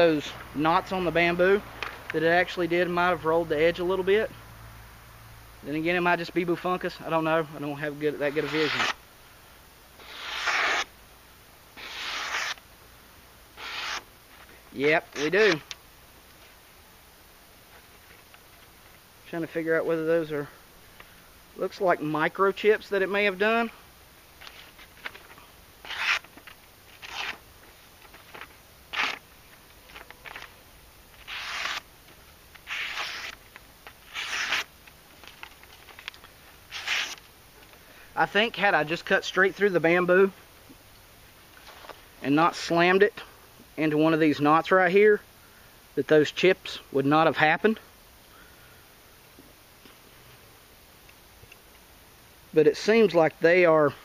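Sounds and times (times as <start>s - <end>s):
knife slicing paper: 8.2s - 9.0s, 10.0s - 10.9s, 11.8s - 12.6s, 13.6s - 14.1s, 25.8s - 27.4s, 28.2s - 29.2s, 31.2s - 31.9s, 32.6s - 34.7s, 36.7s - 37.2s
paper rustling: 24.4s - 27.4s, 28.0s - 30.6s, 32.6s - 37.2s.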